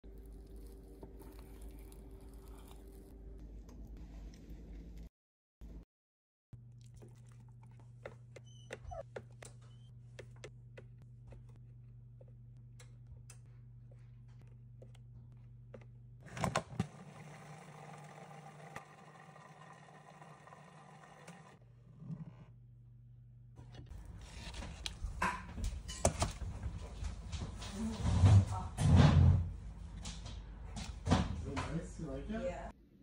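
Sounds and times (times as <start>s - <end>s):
food processor motor running: 16.6s - 21.6s.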